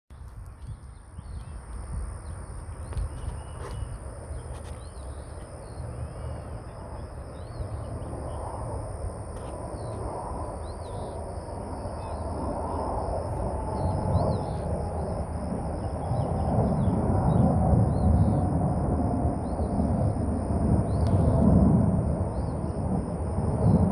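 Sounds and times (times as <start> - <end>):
distant jet roar: 1.4 - 23.9
birds chirping: 2.2 - 8.6, 11.8 - 12.9.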